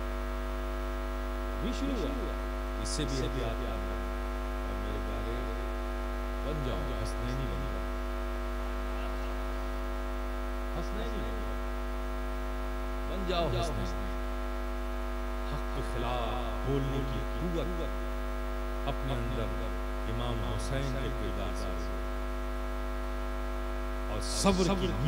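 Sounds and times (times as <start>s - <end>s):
mains hum from sound system: 0.0s - 25.0s
man speaking through microphone: 1.6s - 4.0s, 4.7s - 5.7s, 6.4s - 7.8s, 10.8s - 11.5s, 13.1s - 14.2s, 15.4s - 18.0s, 18.8s - 22.0s, 24.1s - 25.0s.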